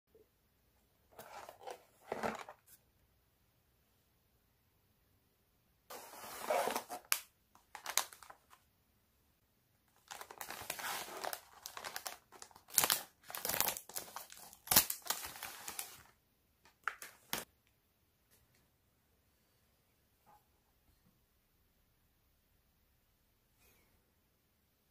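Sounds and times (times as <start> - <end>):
cardboard and plastic handling: 1.1 - 2.8, 5.9 - 8.6
plastic bag crinkling: 5.9 - 8.5, 9.9 - 16.1.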